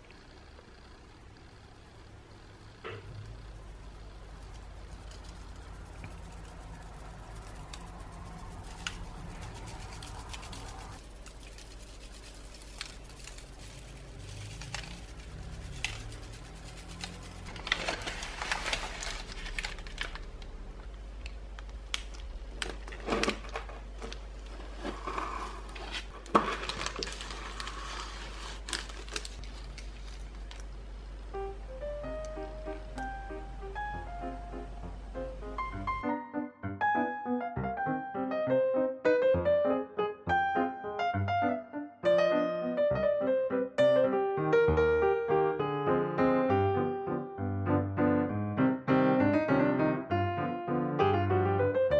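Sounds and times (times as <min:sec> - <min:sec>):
steady low hum: 0:00.0 - 0:36.0
parchment paper rustling: 0:03.5 - 0:30.8
metal strainer tapped and shaken: 0:04.6 - 0:17.5.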